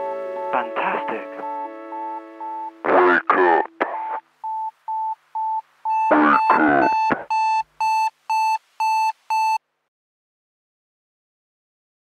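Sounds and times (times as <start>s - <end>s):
person speaking: 0.5s - 1.6s, 2.8s - 4.2s, 6.0s - 7.3s
electronic alarm beeping: 1.0s - 2.8s, 4.4s - 9.6s.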